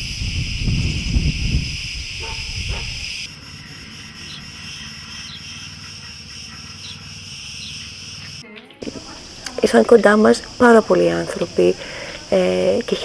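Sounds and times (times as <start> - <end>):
wind rumbling on microphone: 0.0 - 3.3
shrill insect chorus: 0.0 - 13.0.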